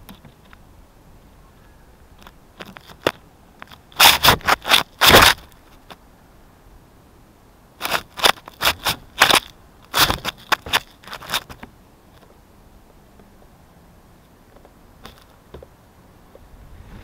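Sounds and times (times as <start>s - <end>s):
scraping against microphone: 3.7s - 6.0s, 16.4s - 17.0s.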